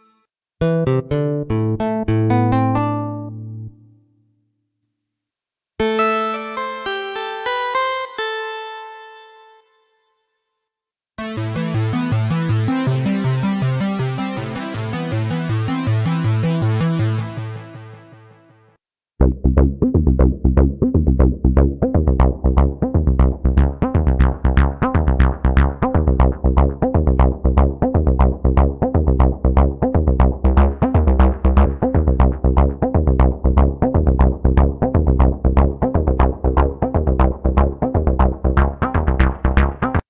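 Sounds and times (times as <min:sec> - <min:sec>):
bass-heavy acid synth sequence: 0:11.2 - 0:18.3, 0:19.2 - 0:40.0.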